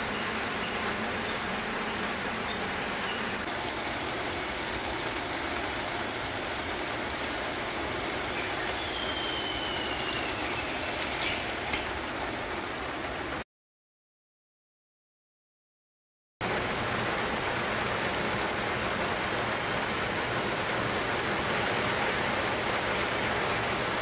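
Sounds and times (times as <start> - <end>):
steady rushing hiss: 0.0 - 13.4.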